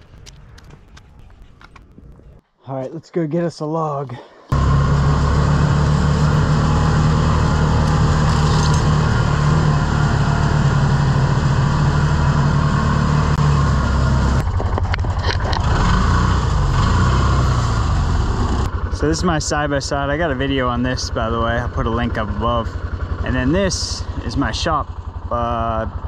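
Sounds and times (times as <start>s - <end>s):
utility vehicle engine running: 4.5s - 26.0s.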